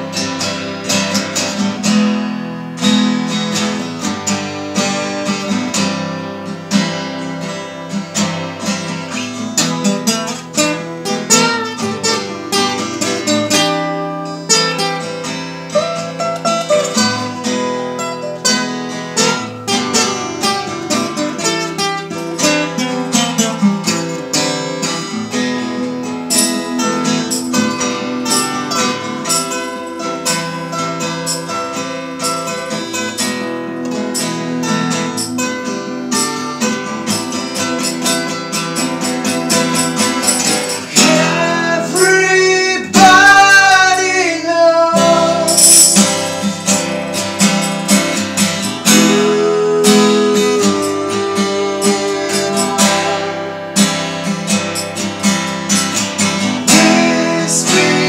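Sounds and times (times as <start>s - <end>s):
acoustic guitars playing folk: 0.0s - 58.0s
person singing: 38.8s - 46.1s, 48.6s - 54.1s, 56.4s - 58.0s.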